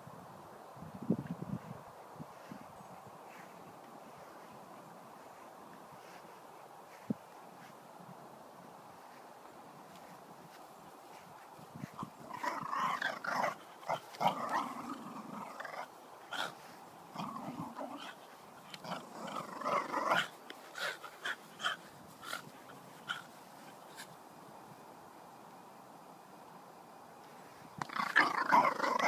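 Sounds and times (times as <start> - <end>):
dog growling: 12.2 - 20.3, 27.8 - 29.0.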